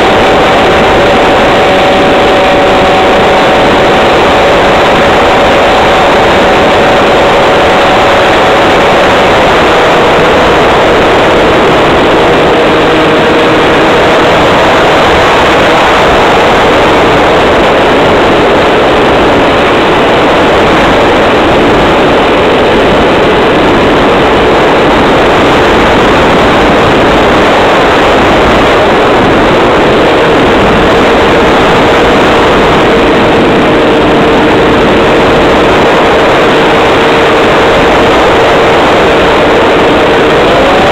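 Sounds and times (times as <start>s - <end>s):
motor and propeller hum: 0.0s - 40.9s
wind rushing: 0.0s - 40.9s.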